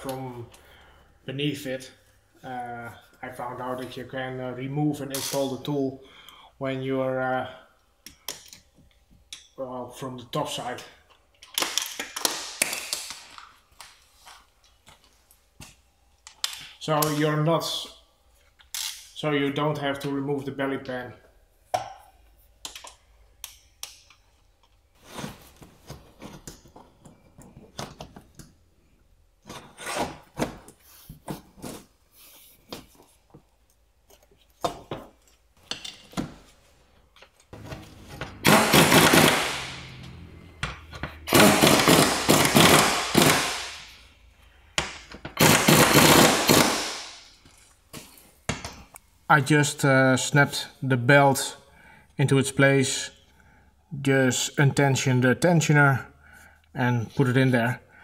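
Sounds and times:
power wrench hammering: 0:37.6 - 0:44.0, 0:44.8 - 0:47.1.

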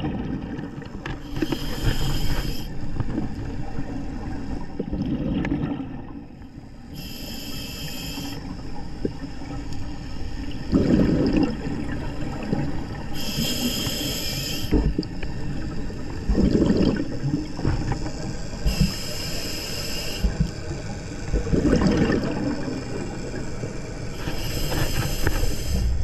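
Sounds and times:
regulator inhale hiss: 0:01.2 - 0:02.9, 0:06.9 - 0:08.5, 0:13.1 - 0:14.9, 0:18.5 - 0:20.4, 0:24.2 - 0:26.0
bubbling exhaled air: 0:10.7 - 0:11.8, 0:16.2 - 0:20.4, 0:21.4 - 0:23.4.

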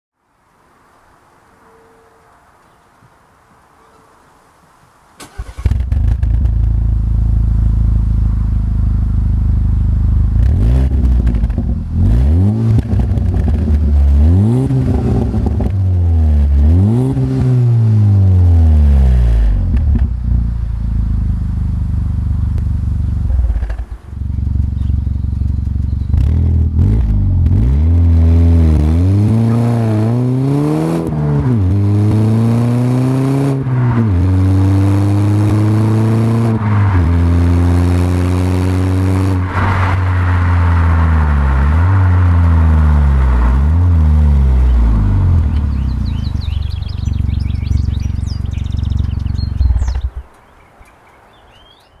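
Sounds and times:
birds chirping: 0:00.3 - 0:05.6, 0:23.9 - 0:26.4, 0:44.5 - 0:52.0
car exhaust accelerating: 0:05.4 - 0:50.3.

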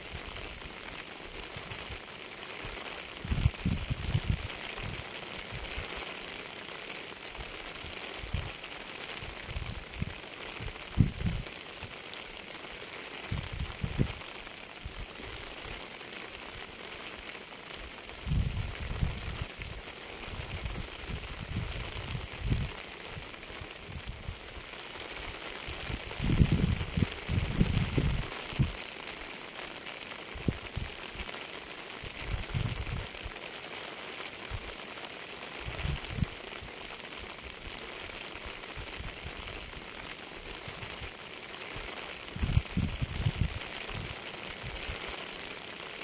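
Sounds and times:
steady rain hiss: 0:00.0 - 0:46.0.

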